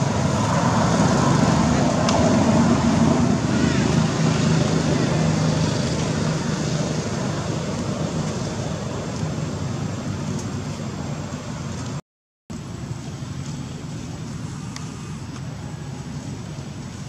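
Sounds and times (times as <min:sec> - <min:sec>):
low rumble with hiss: 0:07.1 - 0:17.0.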